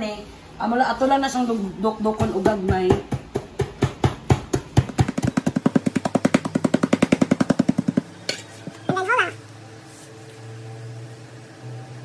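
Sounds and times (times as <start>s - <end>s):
peanuts pounded in a container: 2.2s - 8.2s.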